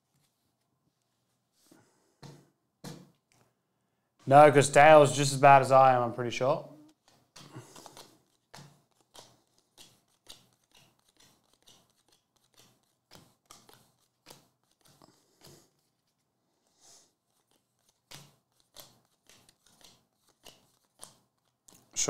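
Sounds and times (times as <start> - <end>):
cards being thumbed: 6.9 - 15.5, 17.4 - 21.9.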